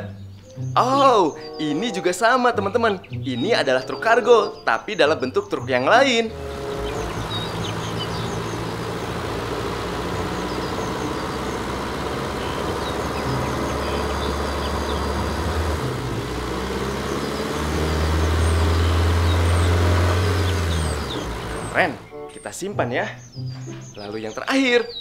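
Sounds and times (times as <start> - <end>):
diesel trucks driving by: 5.5 - 22.4.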